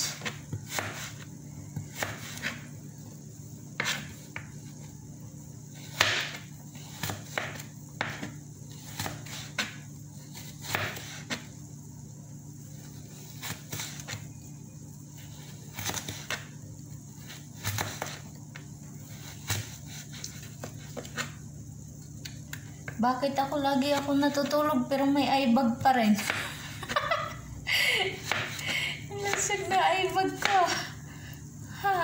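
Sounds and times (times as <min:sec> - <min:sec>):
knife slicing carrot on board: 0:00.0 - 0:01.2, 0:01.8 - 0:02.7, 0:03.8 - 0:04.5, 0:05.8 - 0:11.4, 0:17.2 - 0:18.2.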